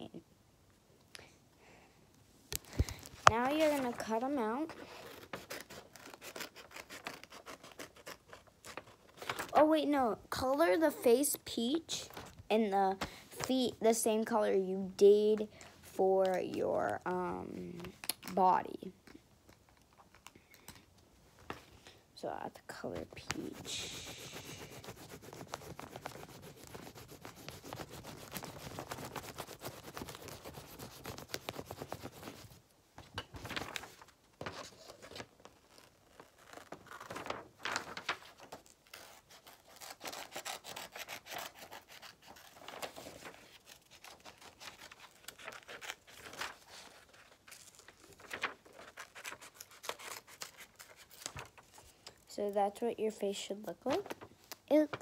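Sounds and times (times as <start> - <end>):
paper being handled: 2.5 - 9.8, 23.0 - 32.6, 33.3 - 52.0, 53.8 - 55.0
drawing tool scratching on paper: 23.4 - 32.4.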